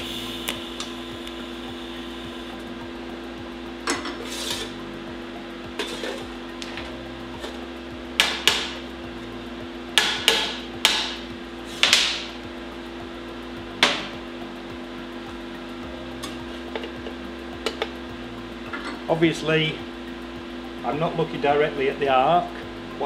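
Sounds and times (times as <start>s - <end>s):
steady low hum: 0.0s - 23.0s
sharp metallic knocks: 9.9s - 11.2s.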